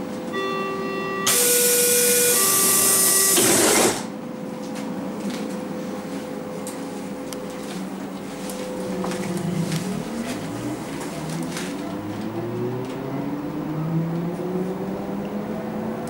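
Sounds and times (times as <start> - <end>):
train door warning beeps: 0.0 - 4.1
sliding doors hissing shut: 1.3 - 4.1.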